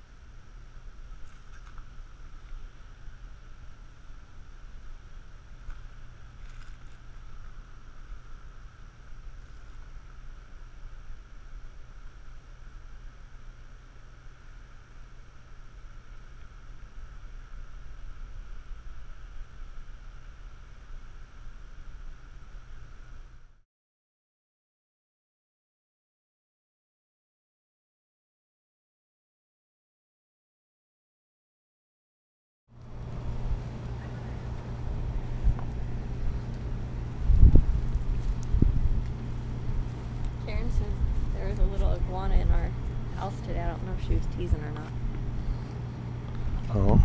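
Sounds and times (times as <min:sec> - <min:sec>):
faint hiss: 0:00.0 - 0:23.6
wind rumble on microphone: 0:32.8 - 0:45.7, 0:46.3 - 0:47.0.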